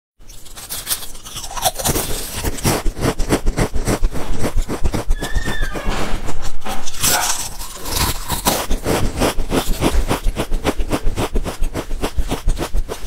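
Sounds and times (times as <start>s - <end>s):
chips and plastic bag crackling: 0.3s - 2.8s, 6.8s - 9.9s
short high squeak: 5.2s - 6.3s.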